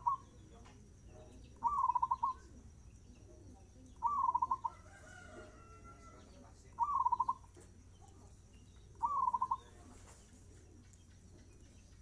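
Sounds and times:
dove cooing song: 0:00.0 - 0:00.5, 0:01.5 - 0:02.6, 0:03.2 - 0:07.5, 0:08.9 - 0:12.0.

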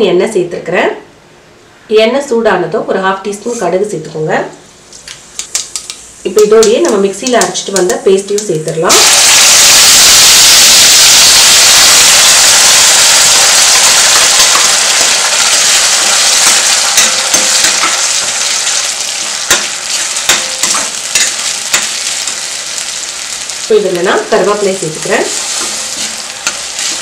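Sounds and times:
paste sizzling in hot oil: 0:08.9 - 0:27.0.

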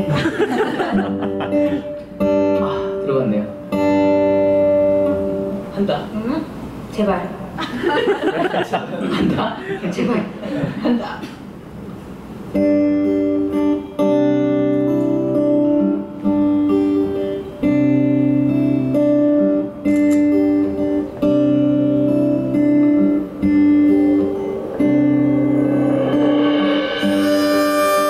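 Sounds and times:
acoustic guitar strumming: 0:00.0 - 0:06.2, 0:12.1 - 0:28.0
low bass notes: 0:22.2 - 0:28.0.

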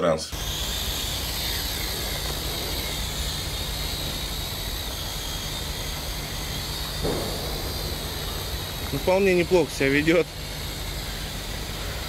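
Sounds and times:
toy drone motors whining: 0:00.2 - 0:12.0.

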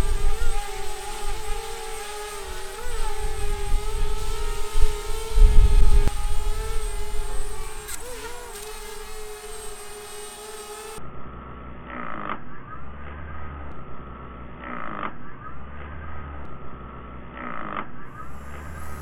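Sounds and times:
drone propellers whining: 0:00.0 - 0:11.0, 0:18.2 - 0:19.0
wind buffeting microphone: 0:02.6 - 0:07.9.

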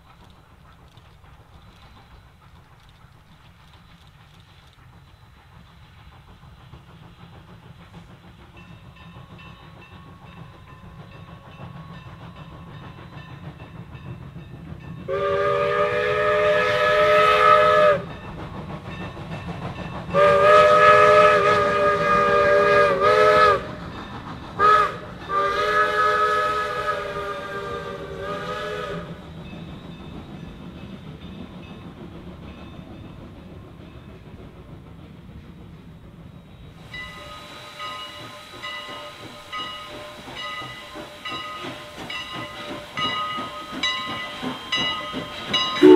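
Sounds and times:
train rumbling: 0:00.0 - 0:45.9
steam locomotive chime whistle: 0:08.5 - 0:31.9, 0:35.6 - 0:45.9.

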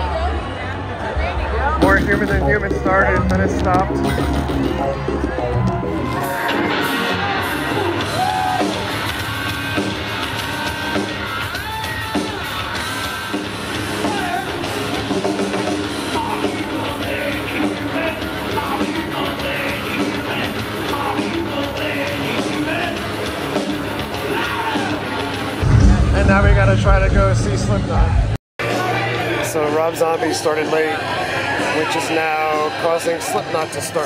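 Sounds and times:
live rock band playing: 0:01.8 - 0:28.3.

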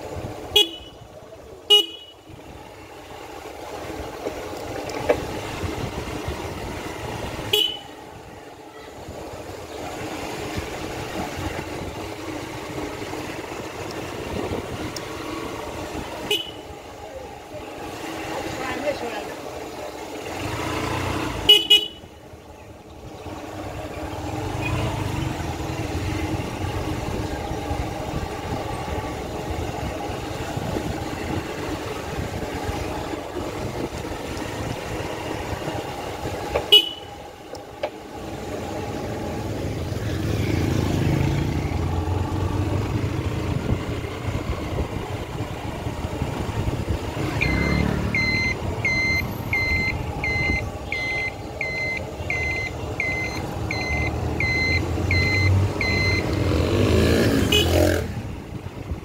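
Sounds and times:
engine and road noise: 0:00.0 - 0:59.0
horn toots: 0:00.5 - 0:01.0, 0:01.7 - 0:02.2, 0:07.5 - 0:07.9, 0:16.2 - 0:16.7, 0:21.3 - 0:22.1, 0:36.6 - 0:37.1, 0:57.1 - 0:58.1
electronic beeps: 0:47.3 - 0:56.3.

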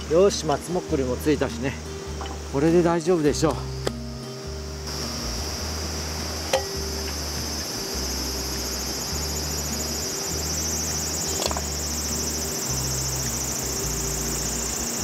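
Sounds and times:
insects chirring: 0:00.0 - 0:15.0
soft bass line music: 0:00.0 - 0:15.0.

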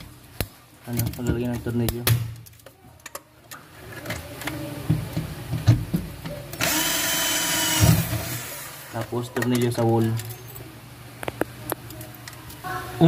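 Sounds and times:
handling knocks and clicks: 0:00.0 - 0:06.6, 0:09.0 - 0:10.6
electric drill running: 0:06.6 - 0:09.0.

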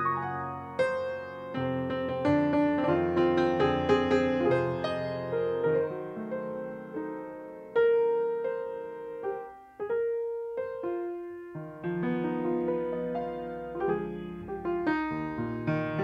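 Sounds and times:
solo piano playing: 0:00.0 - 0:16.0.

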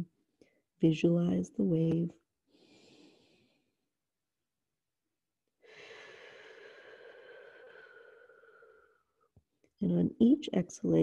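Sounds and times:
person breathing slowly: 0:02.5 - 0:03.7, 0:05.6 - 0:09.1.

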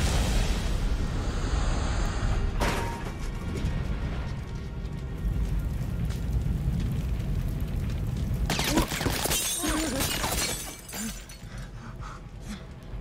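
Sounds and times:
low rumble: 0:00.0 - 0:08.5
glass shattering: 0:08.5 - 0:11.5
glass shards tinkling: 0:09.2 - 0:11.4.

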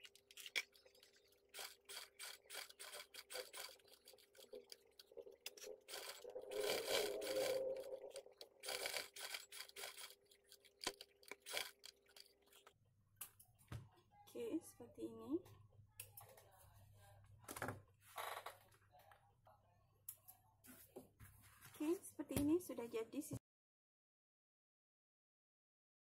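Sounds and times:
sewing machine stitching: 0:01.5 - 0:12.3.

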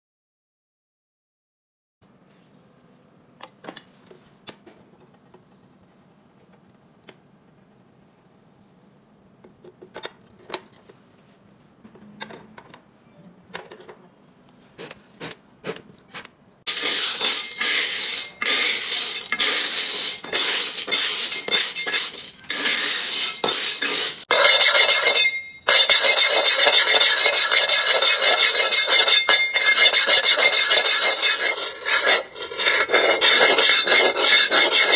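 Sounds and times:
metal spatula scraping screws in pan: 0:16.7 - 0:34.9.

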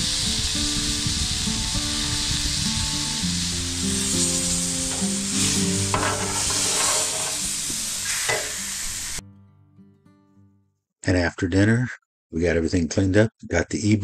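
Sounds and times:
pork chops sizzling on a griddle: 0:00.0 - 0:09.2
background music: 0:00.0 - 0:10.3
metal spatula scraping griddle: 0:03.9 - 0:08.7.

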